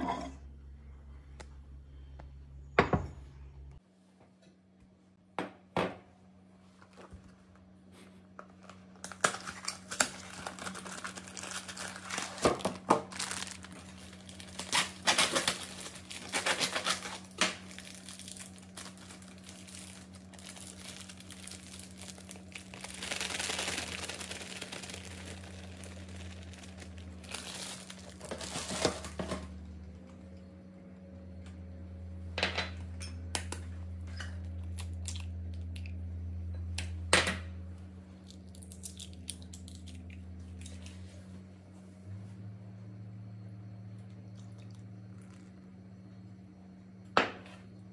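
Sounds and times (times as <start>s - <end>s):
plastic bag crinkling and tearing: 8.5s - 29.5s
dry mix poured into bowl: 17.6s - 29.3s.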